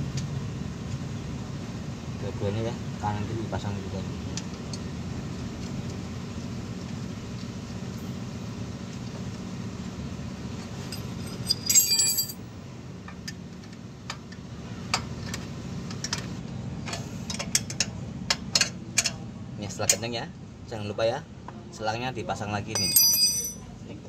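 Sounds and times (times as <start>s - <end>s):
steady low hum: 9.6s - 13.1s
metal tools clinking: 10.6s - 12.4s, 22.7s - 23.6s.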